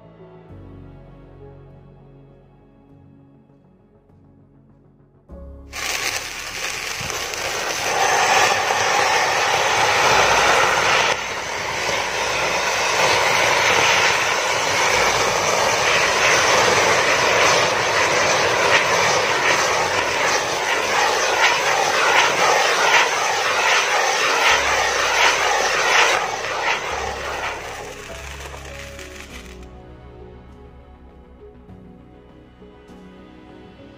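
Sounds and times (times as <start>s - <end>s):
short crackles: 5.7s - 11.2s, 25.9s - 29.7s
fireworks hissing rush: 5.7s - 29.7s.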